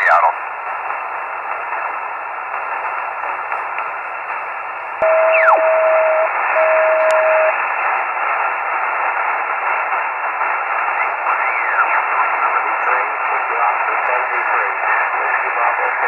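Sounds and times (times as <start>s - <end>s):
steady radio tone: 0.0s - 0.4s, 5.0s - 16.0s
radio receiver hiss: 0.0s - 16.0s
signal sweeping down in pitch: 5.0s - 7.5s.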